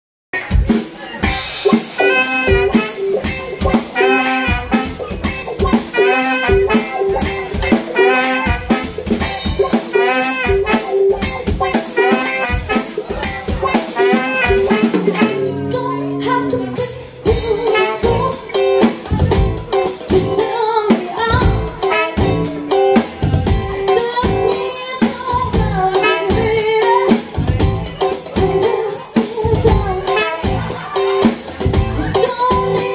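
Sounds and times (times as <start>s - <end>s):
funk band playing: 0.3s - 32.9s
woman singing: 13.2s - 22.6s, 23.7s - 32.9s.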